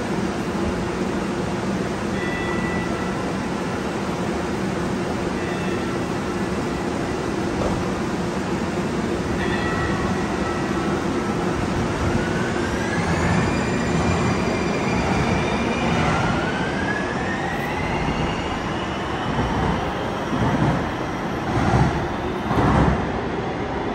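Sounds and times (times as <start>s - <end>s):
wheels rumbling on rail: 17.2s - 23.4s.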